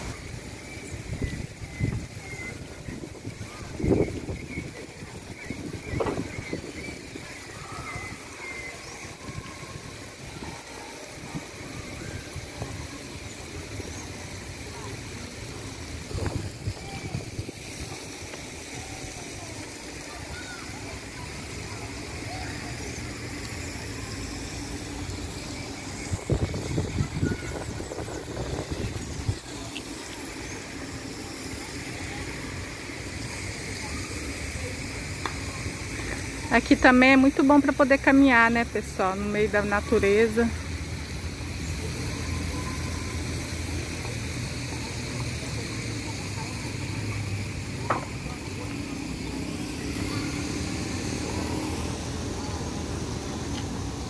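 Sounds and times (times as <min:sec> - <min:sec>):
low city traffic rumble: 0:00.0 - 0:54.0
small birds chirping: 0:00.1 - 0:10.6, 0:11.4 - 0:42.9.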